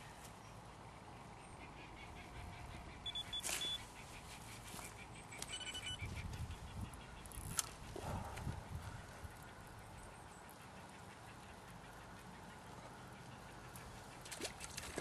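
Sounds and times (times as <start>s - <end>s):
high electronic beeps: 3.0s - 3.8s, 5.3s - 6.1s.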